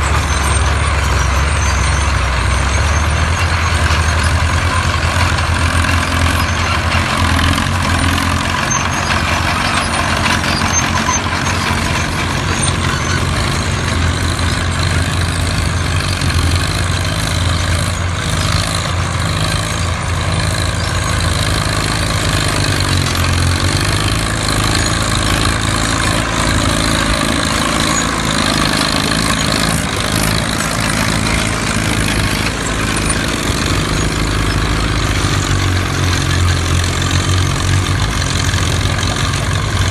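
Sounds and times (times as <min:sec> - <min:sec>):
tractor engine droning: 0:00.0 - 0:39.9.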